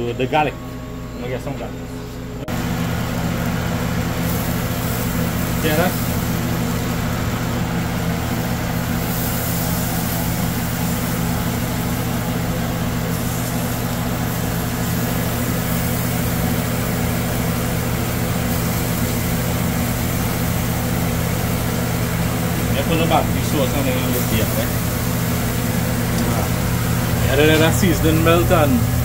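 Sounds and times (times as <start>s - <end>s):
low machine hum: 0.0s - 29.0s
constant hiss: 8.2s - 29.0s.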